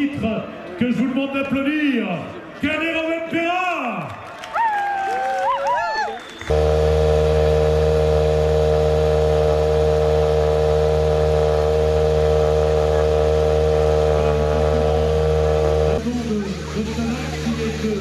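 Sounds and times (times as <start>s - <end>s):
car engine idling: 6.5s - 18.0s.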